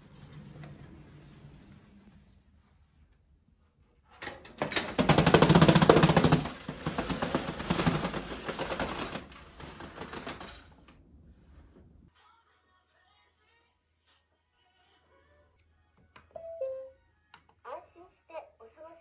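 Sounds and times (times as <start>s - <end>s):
roller shutter slats clattering: 4.2s - 10.9s.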